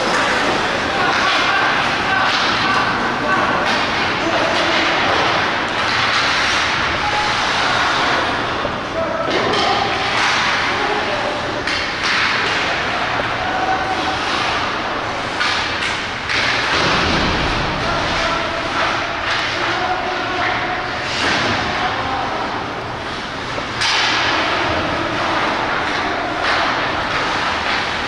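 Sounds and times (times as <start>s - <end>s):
hockey sticks knocking puck: 0.0s - 8.6s, 9.2s - 21.9s, 23.1s - 28.0s
players' voices: 0.0s - 28.0s.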